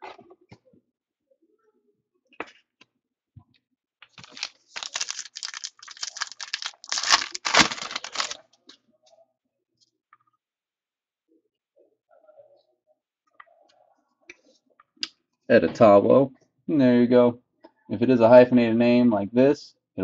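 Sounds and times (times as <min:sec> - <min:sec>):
wrapper tearing and crinkling: 0:04.2 - 0:08.4.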